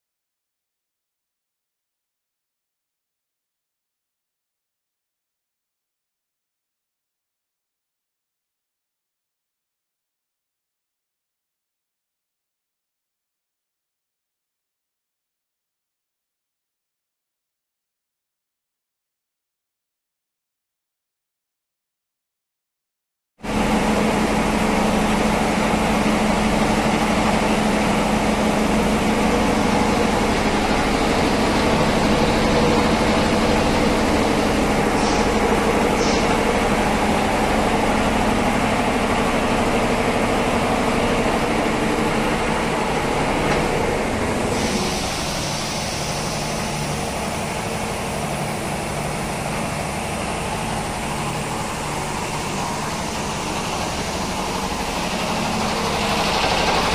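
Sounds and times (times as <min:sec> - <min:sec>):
air compressor running: 0:23.4 - 0:56.9.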